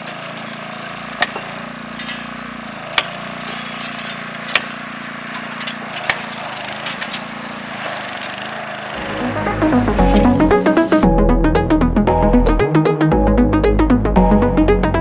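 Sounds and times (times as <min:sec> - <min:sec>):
small petrol engine running: 0:00.0 - 0:11.0
sledgehammer striking steel: 0:01.2 - 0:04.9, 0:05.6 - 0:07.1.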